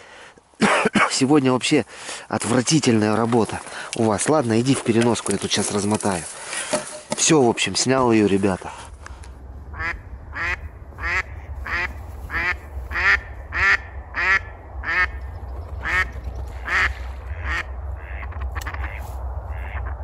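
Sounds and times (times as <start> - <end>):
steady low rumble: 7.7 - 20.0
duck quacking: 9.7 - 15.2, 15.8 - 20.0.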